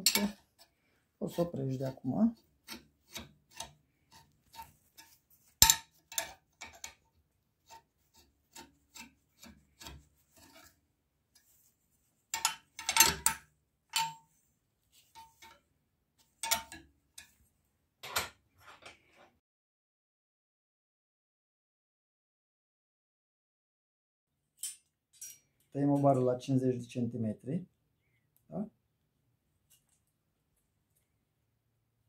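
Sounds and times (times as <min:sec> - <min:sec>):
metal bar clinking against pins: 0:12.4 - 0:14.3, 0:16.4 - 0:17.3.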